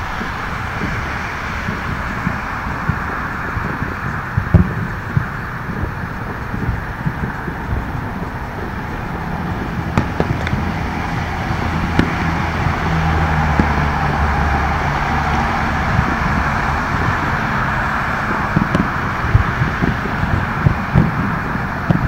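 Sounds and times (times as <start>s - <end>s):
fireworks pops: 0.0s - 12.8s, 13.4s - 13.9s, 18.2s - 22.0s
freeway traffic rumble: 0.0s - 22.0s.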